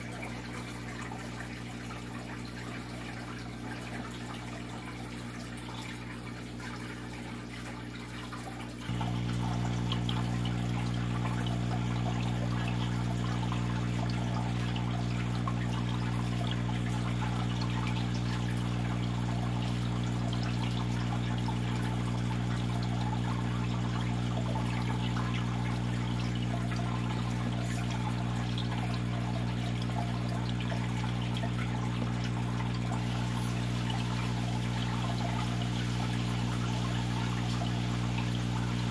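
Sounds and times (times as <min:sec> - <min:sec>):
aquarium pump humming: 0:00.0 - 0:38.9
water pouring and trickling: 0:00.0 - 0:38.9.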